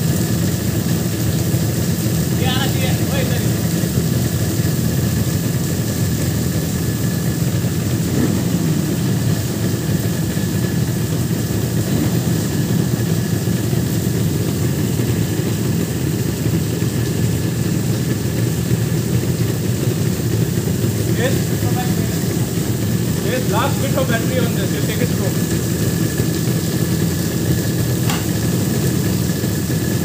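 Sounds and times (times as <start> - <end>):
motorcycle engine idling: 0.0 - 30.0.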